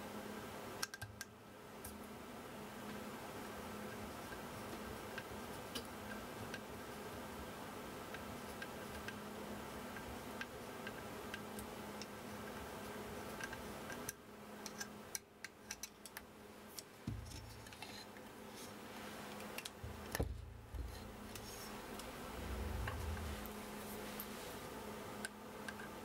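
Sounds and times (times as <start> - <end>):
low steady hum: 0.0 - 26.0
small metal clicks and taps: 13.4 - 17.9.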